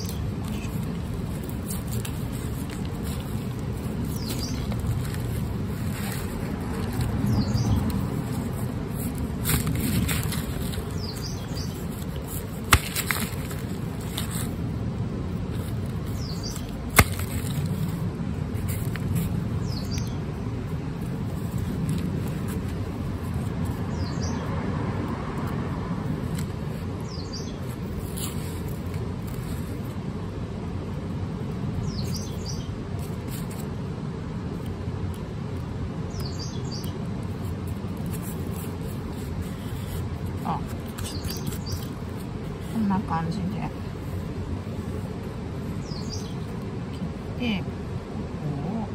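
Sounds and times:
knife cutting garlic roots: 6.1s - 14.6s, 15.7s - 18.0s
bird chirps: 45.8s - 46.4s.

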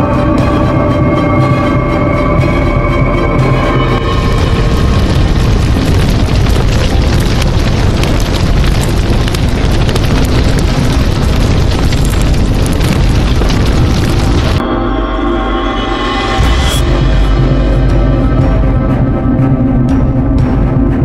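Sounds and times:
dense crackling rumble: 0.0s - 14.8s.

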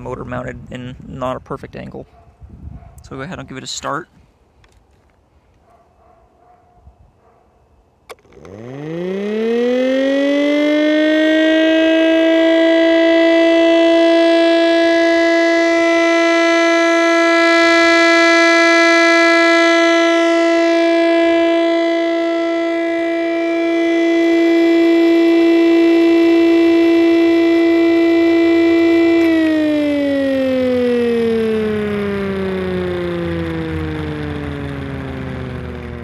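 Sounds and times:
siren winding up: 8.1s - 36.0s.

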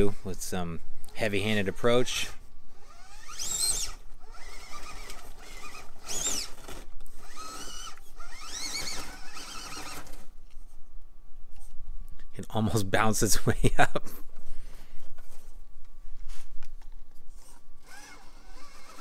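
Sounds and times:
drivetrain whir and grind: 0.0s - 10.7s, 16.7s - 19.0s
electric motor whining: 2.7s - 10.3s, 17.3s - 19.0s.

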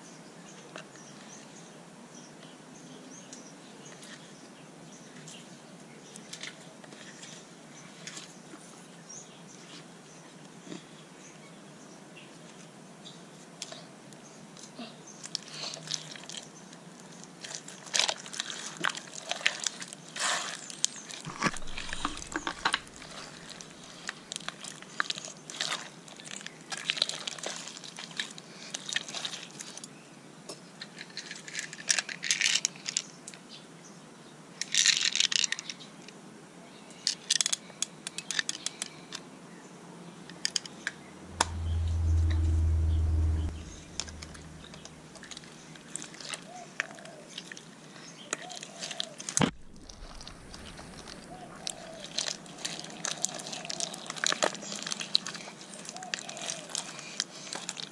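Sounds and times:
low rumble: 21.3s - 24.3s, 41.0s - 45.5s, 49.4s - 52.4s.

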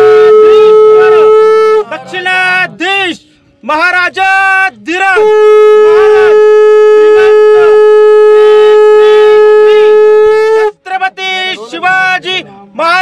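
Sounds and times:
men's voices: 0.0s - 13.0s
conch shell blown: 5.2s - 10.6s.

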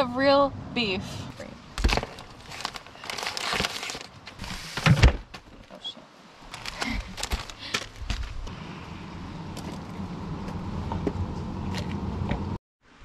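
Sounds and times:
rustling and handling noises: 1.4s - 8.5s.

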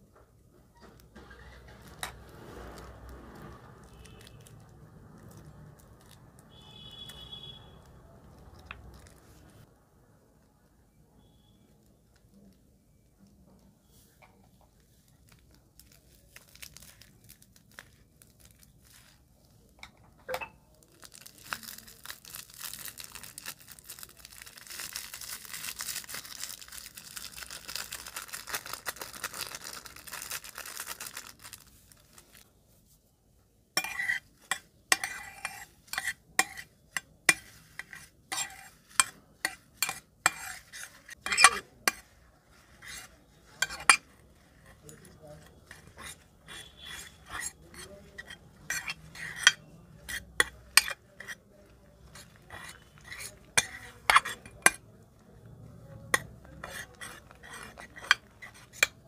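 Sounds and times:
plastic piping bag crackling: 1.0s - 9.7s, 14.6s - 19.8s, 20.7s - 32.6s, 49.9s - 59.0s
metal spoon scraping glass dish: 33.8s - 51.4s, 52.0s - 54.8s, 56.0s - 59.0s.

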